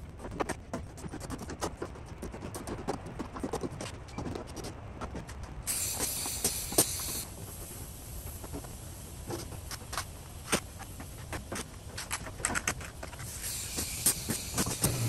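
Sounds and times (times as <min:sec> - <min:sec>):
pneumatic tool air hiss: 0:05.7 - 0:08.0, 0:13.2 - 0:15.0.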